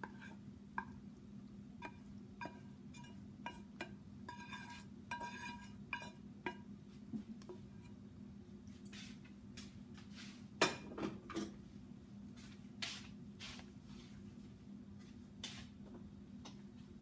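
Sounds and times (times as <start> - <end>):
utensil clinking on frying pan: 1.8 - 6.7.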